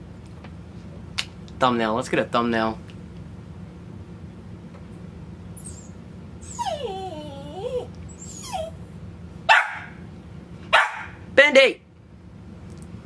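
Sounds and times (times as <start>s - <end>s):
dog whining: 5.6s - 9.0s
dog barking: 9.5s - 10.0s, 10.7s - 11.2s.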